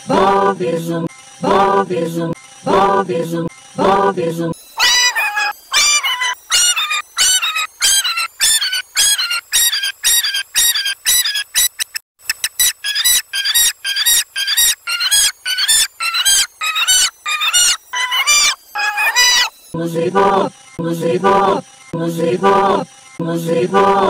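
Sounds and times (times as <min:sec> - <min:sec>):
high-pitched squeaky call: 0:04.8 - 0:19.6.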